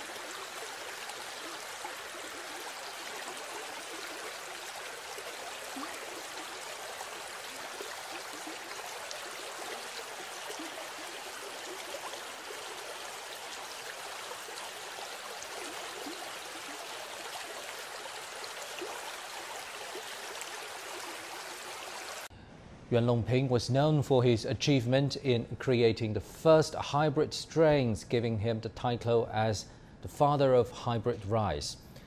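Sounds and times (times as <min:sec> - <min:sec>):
floodwater rushing: 0:00.0 - 0:22.3.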